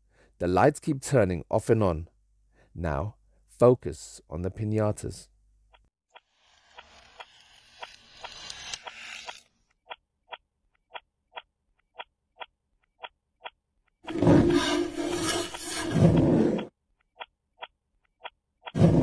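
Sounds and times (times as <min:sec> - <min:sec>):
scraping noise: 0:06.4 - 0:09.5, 0:14.0 - 0:16.7
clock ticking: 0:09.8 - 0:14.2, 0:16.6 - 0:18.8
harsh rasping noise: 0:14.0 - 0:16.7.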